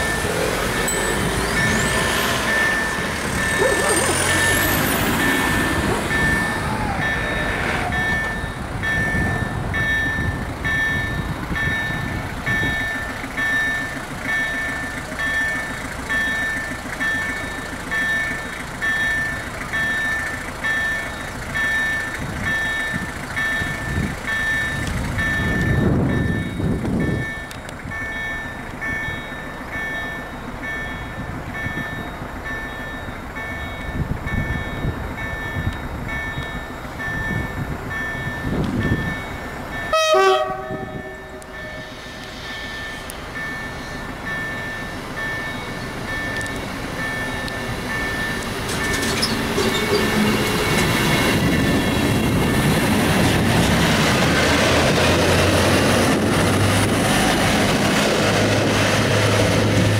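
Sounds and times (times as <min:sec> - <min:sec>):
cars passing: 0:00.0 - 0:17.2, 0:33.4 - 0:59.9
level crossing warning beeps: 0:00.0 - 0:53.8.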